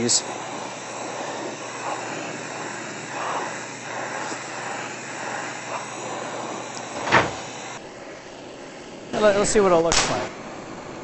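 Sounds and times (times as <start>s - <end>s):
loud burst of noise: 0.0s - 11.0s
torch flame hissing: 0.0s - 11.0s.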